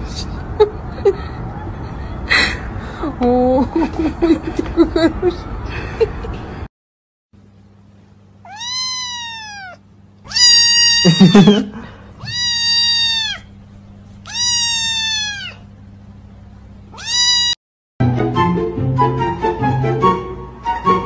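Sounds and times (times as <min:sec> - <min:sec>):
kitten meowing: 0:08.4 - 0:13.5, 0:14.2 - 0:15.7, 0:16.9 - 0:17.6.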